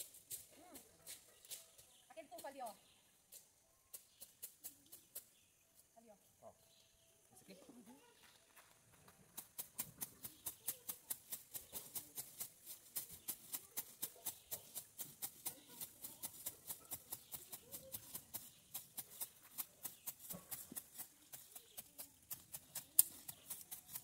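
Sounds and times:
grass shears snipping: 0:15.9 - 0:24.0.

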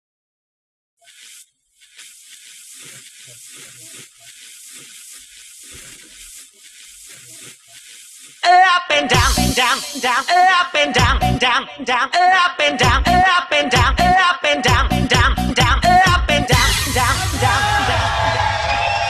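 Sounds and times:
high-pitched static hiss: 0:01.0 - 0:08.5, 0:09.1 - 0:10.6
dance music with synth melody: 0:08.4 - 0:11.9, 0:12.8 - 0:18.3.

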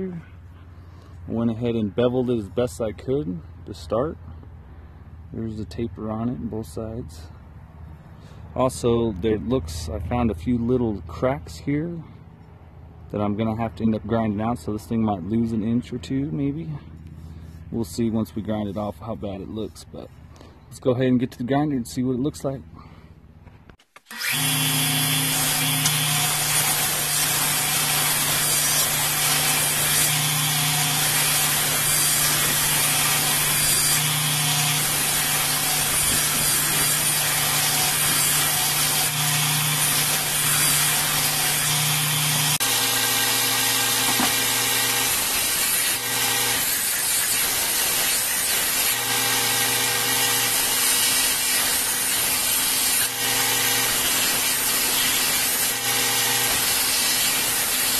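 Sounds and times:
belt grinder grinding hiss: 0:24.0 - 0:57.9
grinder motor hum: 0:24.1 - 0:57.9.

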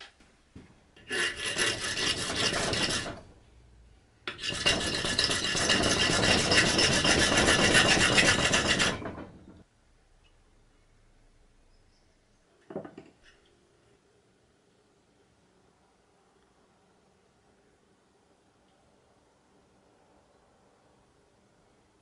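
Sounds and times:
file rasping on steel: 0:01.0 - 0:03.3, 0:04.3 - 0:09.5.

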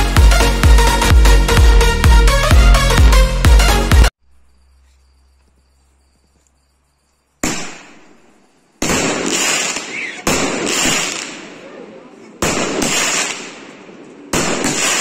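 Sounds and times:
electronic dance music: 0:00.0 - 0:04.1
firework burst: 0:08.8 - 0:11.6, 0:14.3 - 0:15.0
firework crackling hiss: 0:08.9 - 0:11.4.

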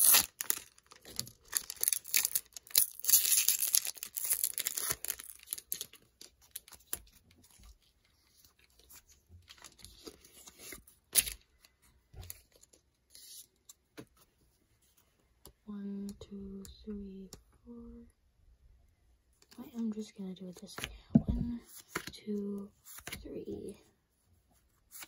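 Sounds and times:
foil wrapper tearing and crinkling: 0:00.0 - 0:07.0.

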